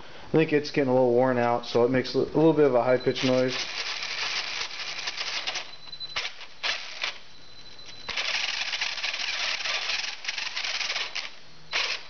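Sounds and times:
thin high motor whine: 2.9 - 12.0
toy car drivetrain spinning: 3.2 - 7.2, 8.1 - 12.0
rattling gear grind: 8.1 - 12.0.

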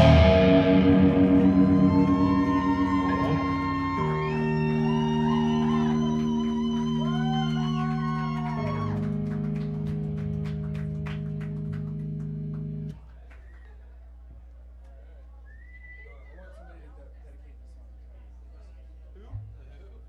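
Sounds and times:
live rock band: 0.0 - 12.9
electric guitar bending notes: 0.0 - 13.0.

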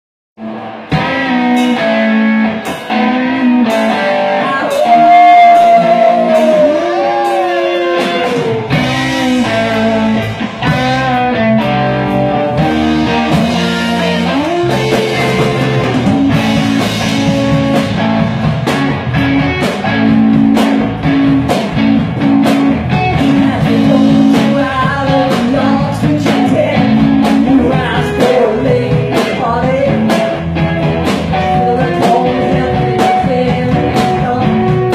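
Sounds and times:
bass guitar: 0.4 - 34.9
drums: 0.4 - 34.9
electric guitars: 0.4 - 34.9
lead singer singing: 3.4 - 10.3, 23.1 - 30.5, 31.3 - 34.9.

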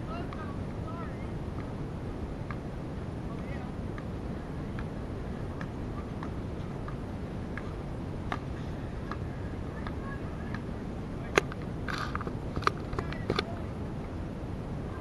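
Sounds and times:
low background noise: 0.0 - 15.0
basketball bouncing on asphalt: 2.5 - 2.7, 4.7 - 7.7.

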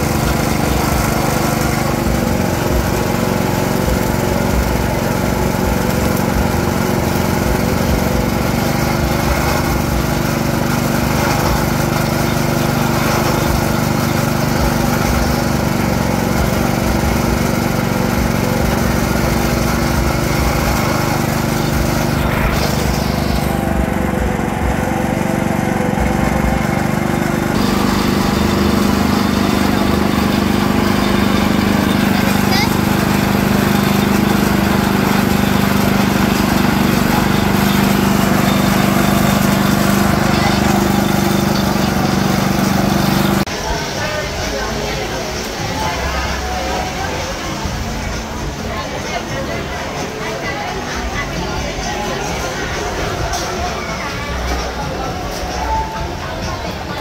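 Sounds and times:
juice press motor humming: 0.0 - 43.9
rollers crushing cane stalks: 0.0 - 49.0.

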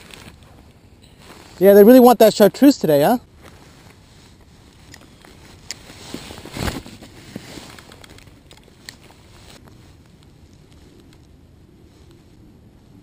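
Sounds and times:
rustling: 0.0 - 2.0, 3.2 - 13.0
rustling thump: 5.8 - 8.2.

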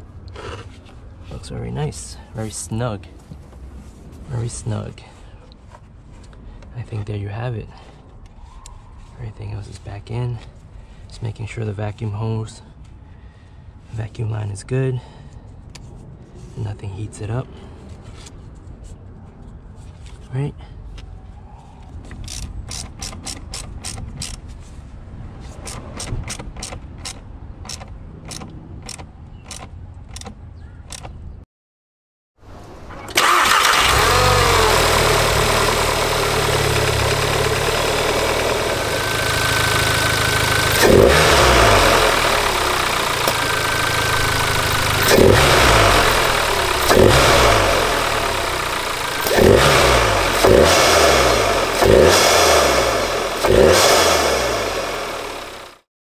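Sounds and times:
car engine revving: 33.1 - 55.8.

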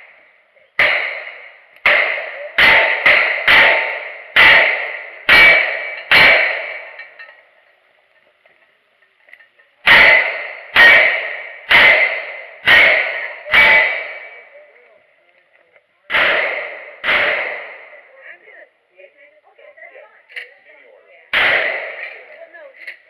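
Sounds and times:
gunshots with ringing tail: 0.8 - 7.0, 9.8 - 14.6, 16.1 - 18.1, 21.3 - 22.4.

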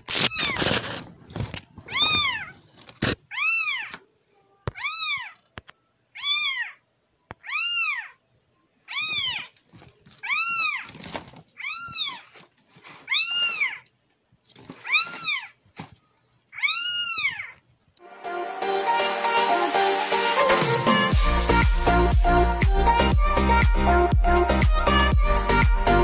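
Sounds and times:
recorded kitten meows: 3.3 - 4.0, 4.6 - 5.4, 6.1 - 6.8, 7.4 - 8.2, 8.9 - 9.5, 10.2 - 10.8, 11.6 - 12.3, 13.1 - 13.8, 14.8 - 15.5, 16.5 - 17.6
music: 18.0 - 26.0.

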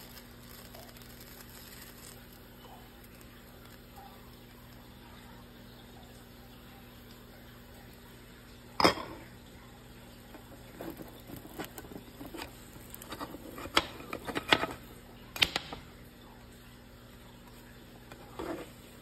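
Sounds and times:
glass pan lid clanking: 8.8 - 9.2
spatula scraping a pan: 10.7 - 14.9, 18.1 - 18.8.

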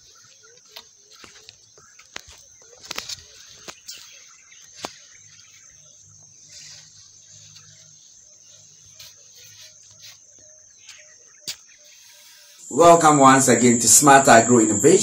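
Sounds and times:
faint chirps: 0.0 - 15.0
high-pitched insect drone: 0.0 - 15.0.

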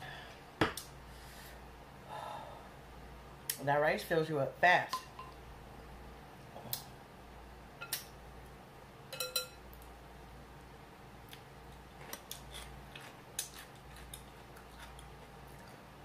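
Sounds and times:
utensils clinking against glass bowls: 9.1 - 9.6.

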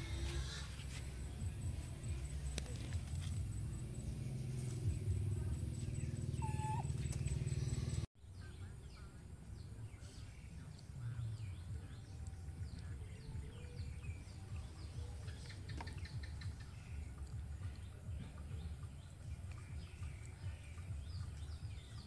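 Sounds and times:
low steady rumble: 0.0 - 8.1
birds chirping: 0.0 - 22.0.

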